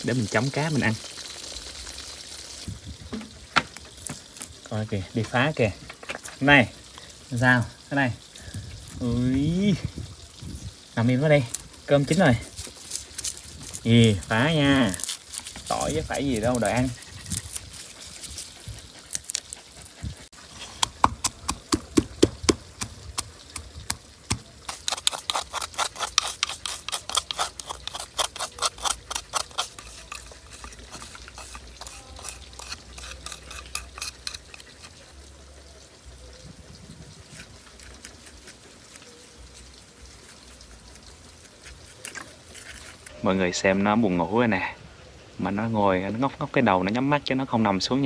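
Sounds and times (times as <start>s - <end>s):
fish sizzling in oil: 0.0s - 43.2s
pestle knocking in wooden mortar: 20.8s - 32.7s.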